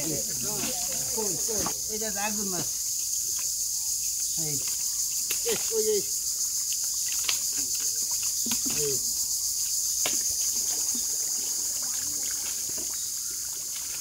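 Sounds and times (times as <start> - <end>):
insects chorus: 0.0 - 14.0
splashes in shallow mud: 4.6 - 6.0, 6.6 - 9.0, 9.9 - 14.0.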